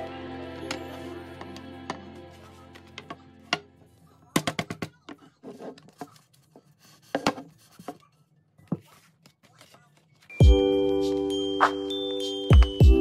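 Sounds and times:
cutting board knocks and scrapes: 7.0 - 8.0.

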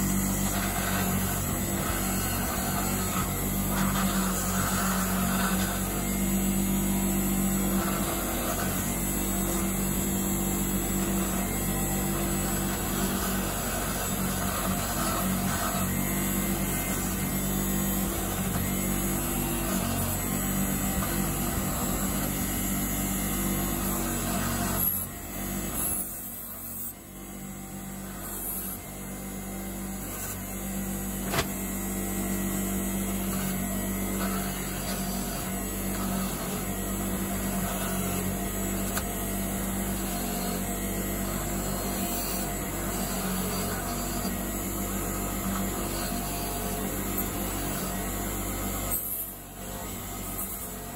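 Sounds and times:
wire wheel brushing metal: 0.0 - 25.1
bench grinder motor hum: 0.0 - 50.9.

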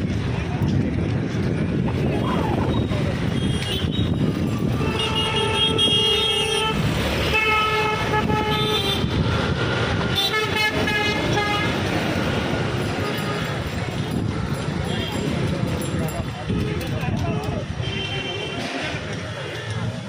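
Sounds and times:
traffic rumble: 0.0 - 20.0
vehicle horns honking: 2.7 - 9.2, 10.1 - 11.9, 12.9 - 13.8, 17.7 - 18.8.

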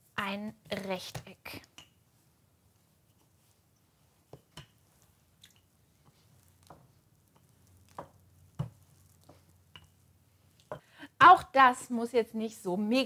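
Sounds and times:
rolling pin rolling dough: 2.0 - 10.8
soft knocks of rolling pin: 6.0 - 10.0.

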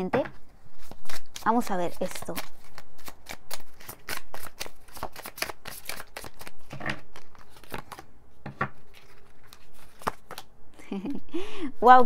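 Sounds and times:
cards being shuffled by hand: 0.3 - 10.5.

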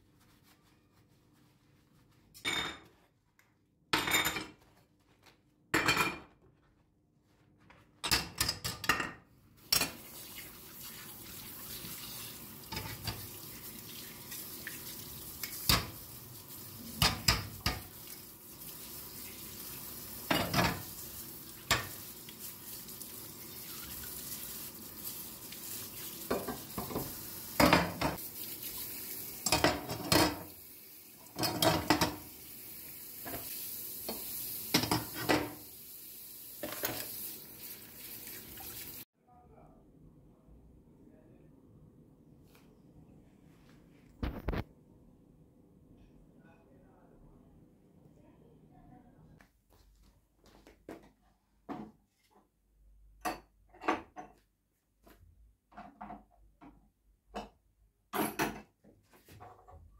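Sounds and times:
running tap water: 9.6 - 39.1
metal parts clattering in sink: 29.4 - 30.5, 31.4 - 32.2.

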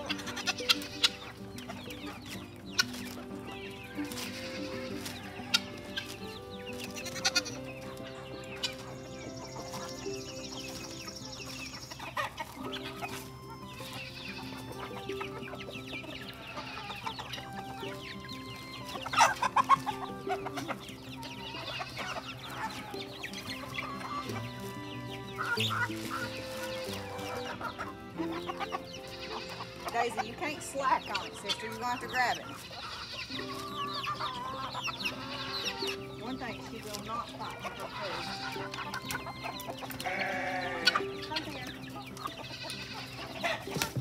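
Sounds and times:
background music with sustained notes: 0.0 - 44.0
poultry clucking and calling: 0.0 - 44.0.

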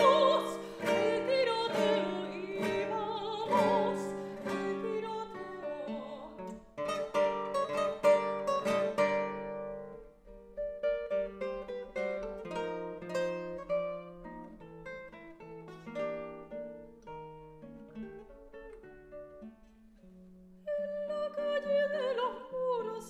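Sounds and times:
soprano singing with vibrato: 0.0 - 8.0, 20.6 - 23.0
classical guitar strumming: 0.0 - 23.0.

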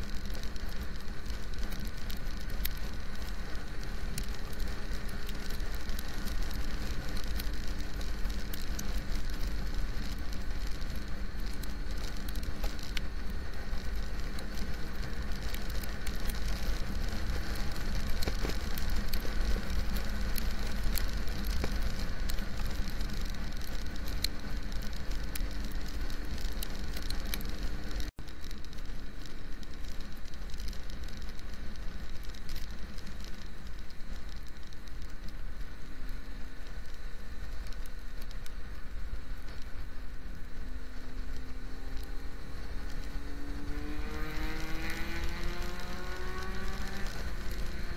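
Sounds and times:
raindrops ticking on camera: 0.0 - 47.9
wind rumble on microphone: 0.0 - 47.9
motorcycle engine: 39.9 - 47.9.

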